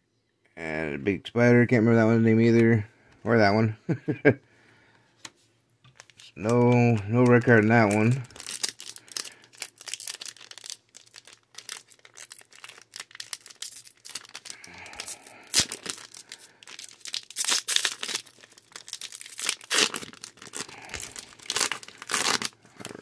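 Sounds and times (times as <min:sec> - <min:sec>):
plastic wrappers crinkling and tearing: 0:05.9 - 0:23.0.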